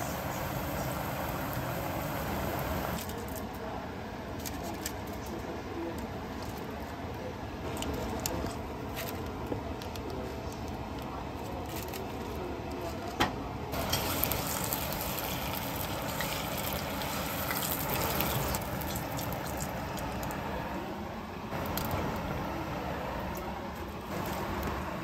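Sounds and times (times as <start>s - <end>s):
deep-frying in hot oil: 0.0s - 3.4s, 13.2s - 20.8s, 21.5s - 25.0s.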